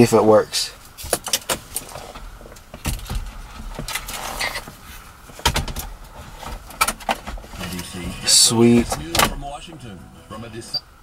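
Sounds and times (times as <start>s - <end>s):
rustling: 0.8s - 9.4s.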